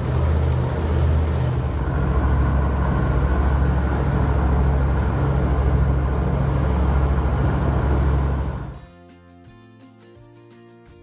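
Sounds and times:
boat engine droning: 0:00.0 - 0:08.8
wake churning: 0:00.0 - 0:08.8.

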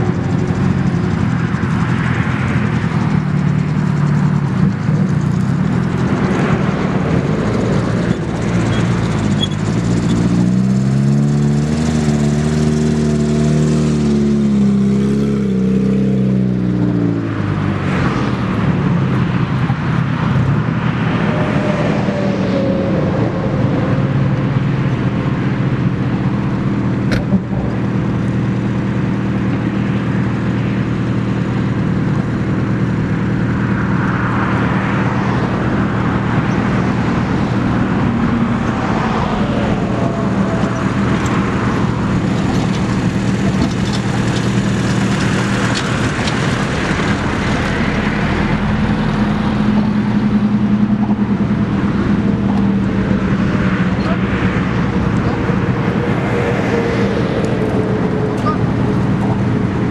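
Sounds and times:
off-road vehicle engines low revs: 0:29.6 - 0:59.9.

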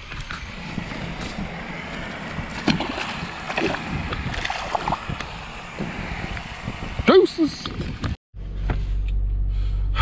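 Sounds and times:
wind buffeting microphone: 0:00.0 - 0:08.2
small water splashes: 0:02.3 - 0:05.6.

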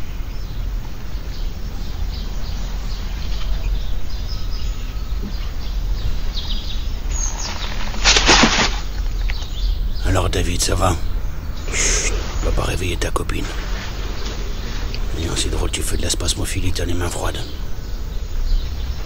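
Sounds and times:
birds chirping: 0:00.0 - 0:19.0
low background rumble: 0:00.0 - 0:19.0
loud rustle: 0:06.9 - 0:09.6.

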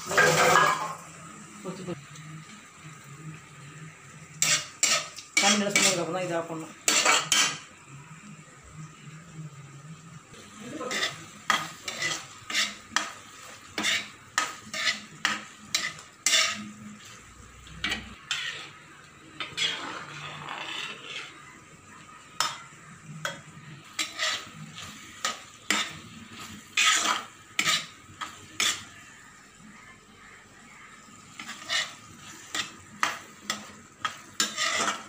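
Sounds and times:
sizzling: 0:00.0 - 0:35.0
spoon clinking and scraping pan: 0:00.1 - 0:01.0, 0:04.4 - 0:06.1, 0:06.8 - 0:07.7, 0:10.8 - 0:21.6, 0:22.4 - 0:29.2, 0:31.3 - 0:35.0.

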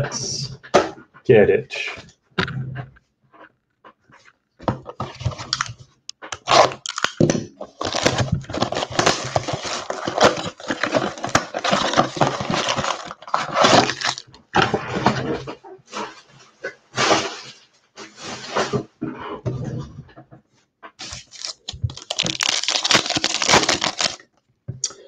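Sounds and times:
packs crinkling and tearing: 0:05.0 - 0:14.4, 0:21.0 - 0:24.3.

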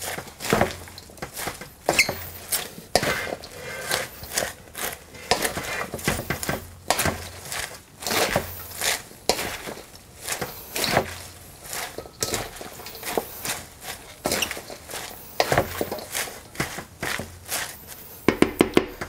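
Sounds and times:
salad leaves rustling: 0:00.0 - 0:19.0
wooden servers tapping metal bowl: 0:18.2 - 0:19.0.

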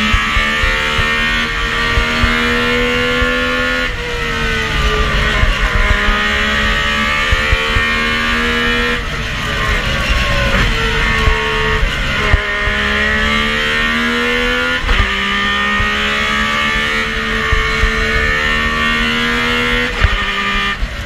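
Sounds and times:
rally engine under full throttle: 0:00.0 - 0:21.0.

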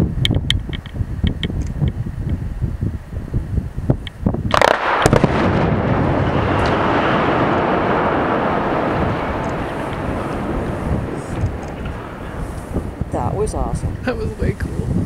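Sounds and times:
explosive rock blast boom: 0:04.4 - 0:14.5
rumble of falling rock: 0:04.5 - 0:14.0
blast crack: 0:04.5 - 0:14.5.

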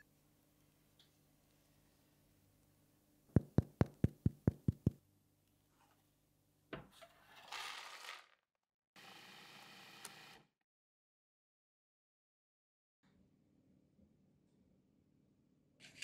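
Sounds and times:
fingers tapping bread crust: 0:03.4 - 0:05.0.

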